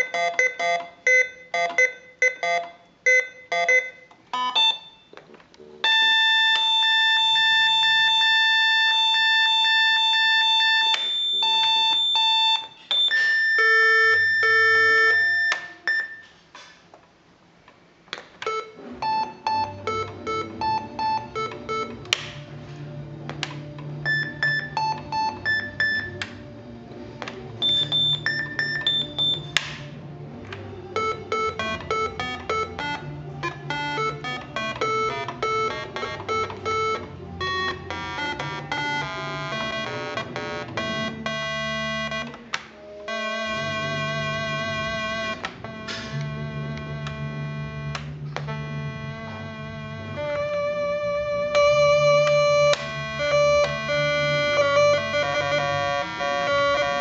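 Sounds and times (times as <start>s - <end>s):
electronic keyboard beeping tone: 0.0s - 5.1s, 5.8s - 16.4s, 18.5s - 22.1s, 24.0s - 26.3s, 27.6s - 29.6s, 30.9s - 42.4s, 51.5s - 57.0s
keyboard bass and chord pattern: 19.2s - 57.0s.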